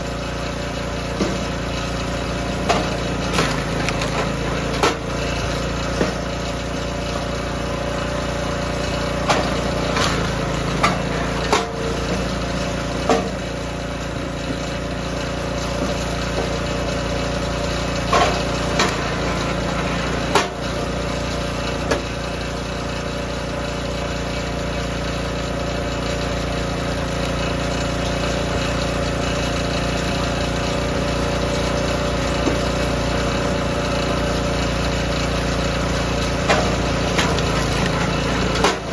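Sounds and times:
small gas engine running: 0.0s - 38.9s
wood cracking and splitting: 2.6s - 5.5s, 35.8s - 38.9s.

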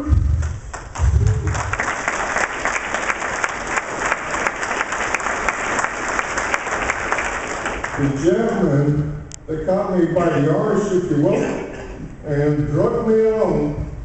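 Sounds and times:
audience applauding: 0.4s - 8.7s.

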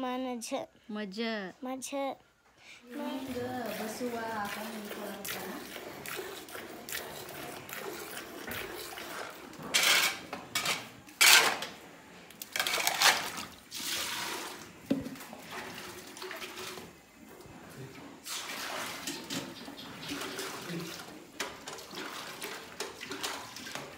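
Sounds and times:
metal vessels clinking: 7.3s - 11.8s
liquid splashing into metal: 12.4s - 17.0s, 18.2s - 23.9s.

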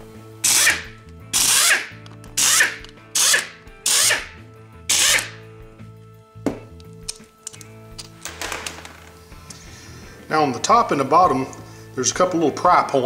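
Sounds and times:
cordless impact driver running: 1.4s - 4.3s, 4.9s - 5.4s.

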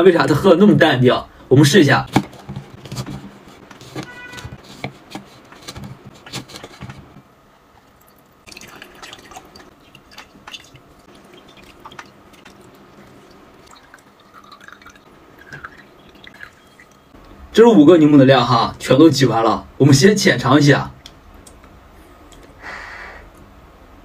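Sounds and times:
juice dripping into a glass: 7.8s - 17.1s.

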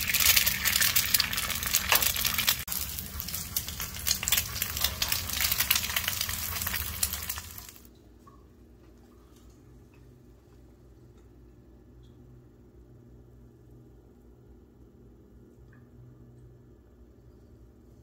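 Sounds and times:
eggs sizzling on a griddle: 0.0s - 7.9s.

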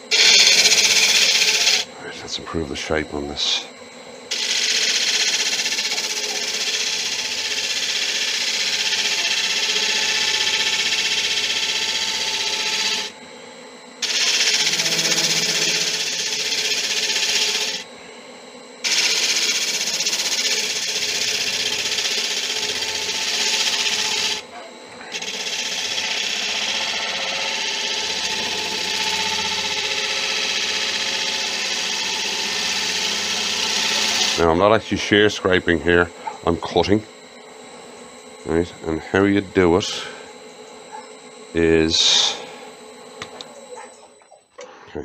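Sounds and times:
gouge cutting wood on lathe: 0.0s - 1.9s, 4.3s - 13.2s, 14.0s - 17.9s, 18.8s - 34.5s
lathe running: 0.0s - 3.6s, 4.3s - 13.3s, 14.0s - 18.0s, 18.8s - 43.7s.

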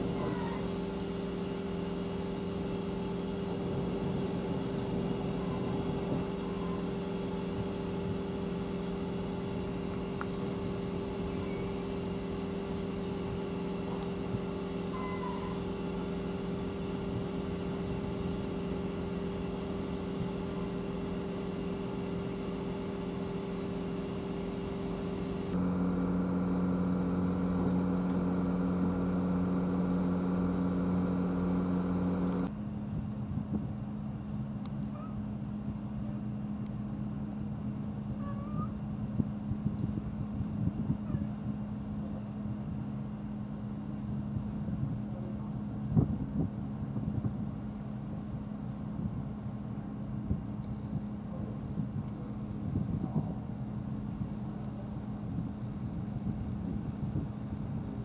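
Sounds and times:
ship diesel engine humming: 0.0s - 32.5s.

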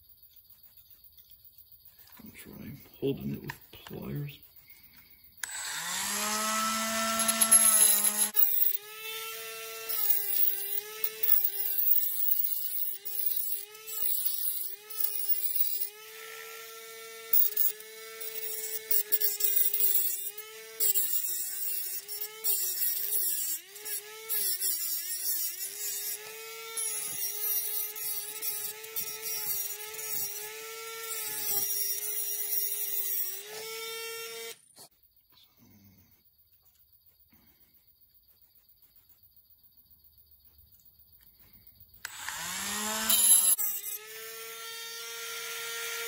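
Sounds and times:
rotary tool whining: 3.3s - 34.8s, 42.0s - 46.0s
grinding into metal: 5.4s - 33.7s.

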